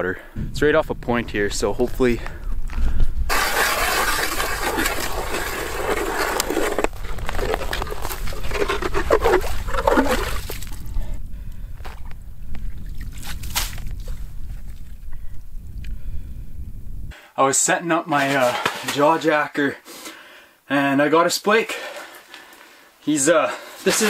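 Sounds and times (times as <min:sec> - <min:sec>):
ice auger grinding through ice: 0:03.3 - 0:10.8
clicks and splashes: 0:03.3 - 0:11.0, 0:12.8 - 0:14.2
water sloshing: 0:03.3 - 0:11.0.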